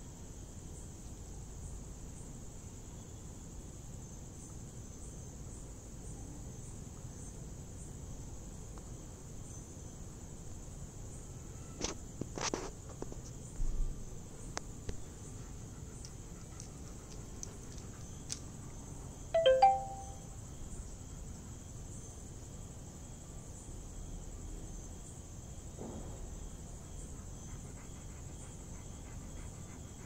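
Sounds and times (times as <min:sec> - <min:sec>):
ringing chime-like double note: 0:19.4 - 0:20.2.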